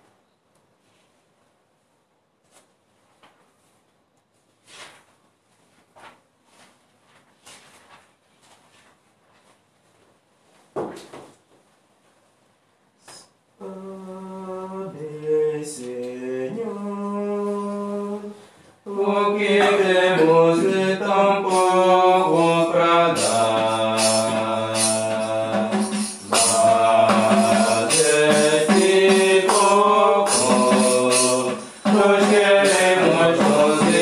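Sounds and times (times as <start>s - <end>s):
hymn singing with accompaniment: 13.6s - 34.0s.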